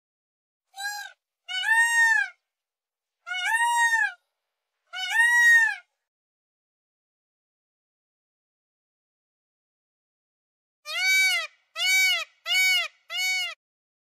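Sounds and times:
peacock calling: 0.8s - 2.4s, 4.9s - 5.9s, 10.9s - 13.6s.

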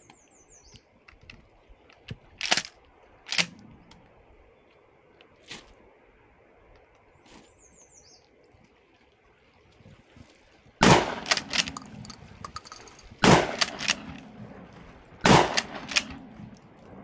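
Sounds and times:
shotgun pump clicks: 1.0s - 4.0s, 10.9s - 14.2s, 15.3s - 16.2s
shotgun shots: 10.8s - 12.0s, 13.2s - 14.2s, 15.2s - 16.3s.

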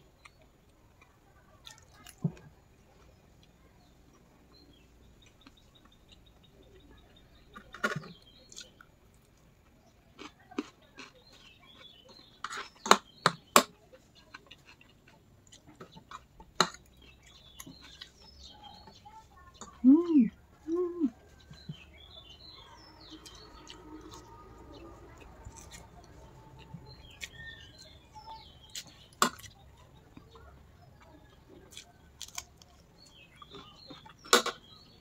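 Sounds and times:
quiet chewing: 0.2s - 35.0s.

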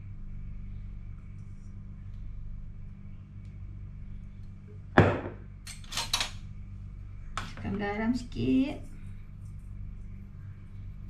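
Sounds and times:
steady low hum: 0.0s - 11.0s
bottle set down on metal counter: 5.0s - 5.4s.

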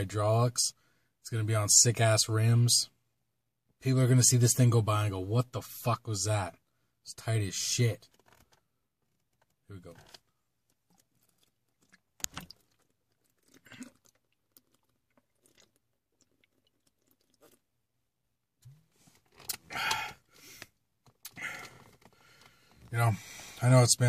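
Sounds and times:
person gulping and swallowing: 10.0s - 17.8s, 18.6s - 20.3s, 21.1s - 22.9s
breathing and mouth sounds: 10.2s - 17.6s, 18.8s - 23.6s.

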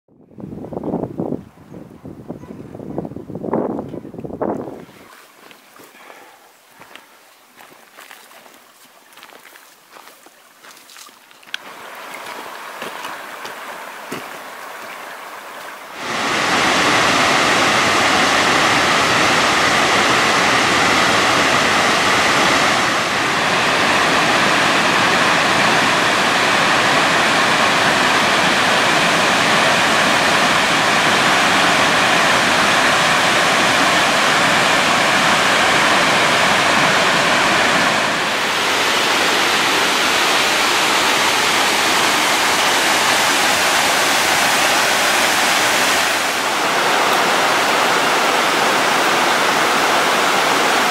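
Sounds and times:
waterfall rushing: 11.6s - 50.9s.

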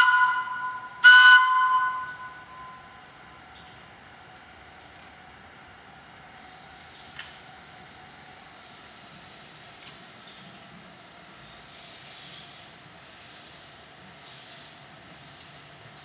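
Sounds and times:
steam locomotive hissing: 6.2s - 16.0s.

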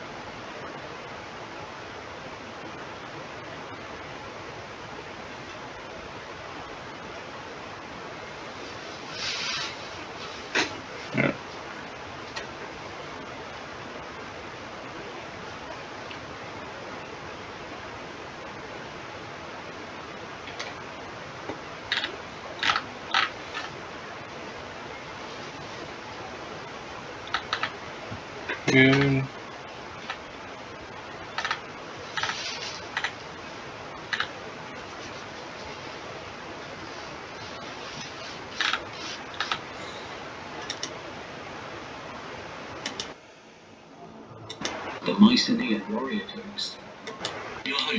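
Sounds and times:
microphone hiss: 0.0s - 47.9s
computer keyboard clicks: 21.9s - 23.7s, 27.3s - 27.7s, 31.4s - 31.6s
click: 40.6s - 40.9s, 42.8s - 43.1s, 44.5s - 44.8s.

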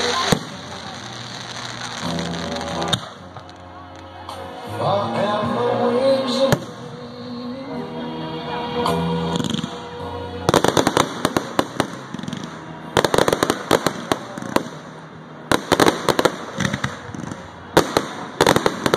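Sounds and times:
fireworks bangs and crackles: 0.0s - 4.1s, 9.3s - 9.9s, 10.5s - 18.9s.

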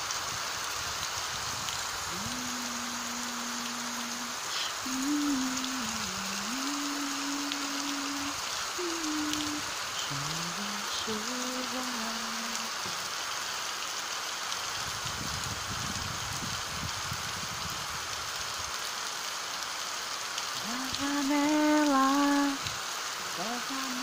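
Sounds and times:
rain on roof tiles and pavement: 0.0s - 24.0s
person humming: 2.1s - 13.0s, 20.6s - 24.0s.

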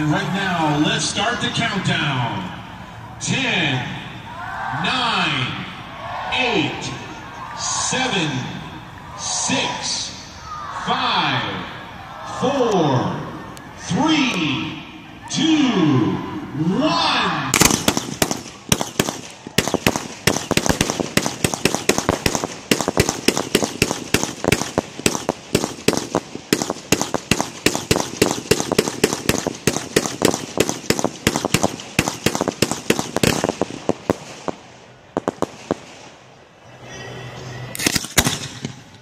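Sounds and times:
fireworks bangs: 17.5s - 36.4s, 37.8s - 39.0s.

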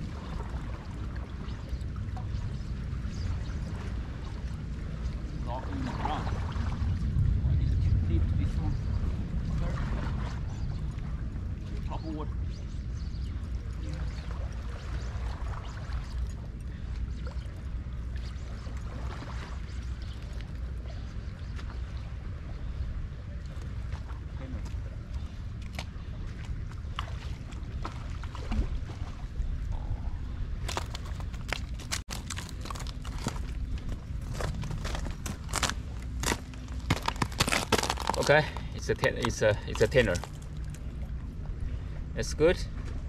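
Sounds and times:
light water splashes: 0.0s - 43.0s
steady low rumble: 0.0s - 43.0s
small waves lapping on rocks: 30.5s - 41.2s
gear rustling and clicking: 30.6s - 40.8s.

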